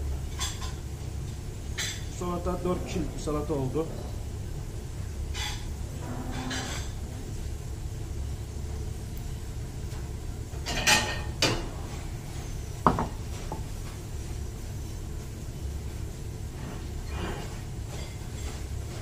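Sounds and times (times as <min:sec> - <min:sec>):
low rumble: 0:02.1 - 0:08.4.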